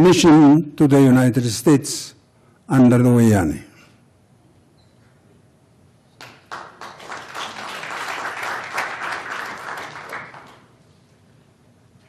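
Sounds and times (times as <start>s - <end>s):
audience applauding: 6.2s - 10.8s.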